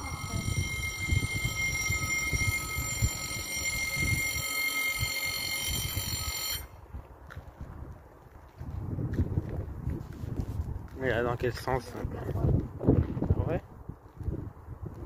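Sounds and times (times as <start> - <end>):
level crossing warning bell: 0.0 - 6.8
wind buffeting microphone: 0.0 - 15.0.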